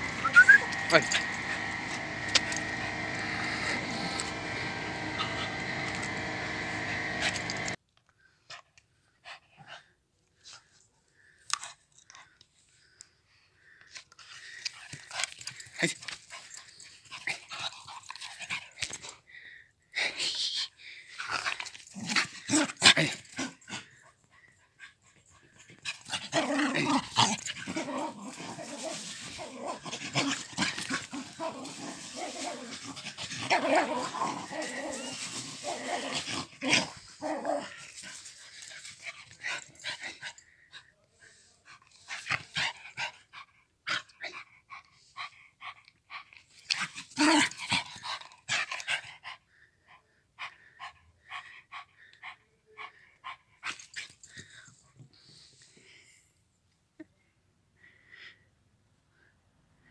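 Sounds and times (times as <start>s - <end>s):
dog growling in play: 0.0s - 7.8s, 25.7s - 40.1s, 46.7s - 49.0s.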